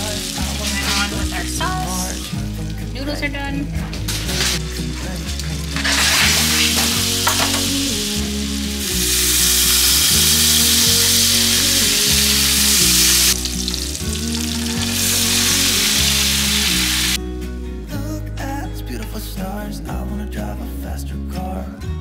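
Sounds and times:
tongs stirring in a skillet: 0.0 - 2.3, 4.1 - 17.0
butter sizzling in a skillet: 0.0 - 3.0, 4.0 - 17.2
background music with bass line: 0.0 - 22.0.

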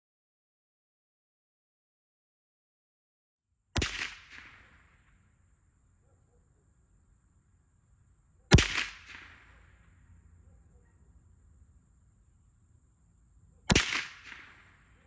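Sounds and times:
rifle shot with echo: 3.8 - 5.3, 8.5 - 10.0, 13.7 - 15.0.

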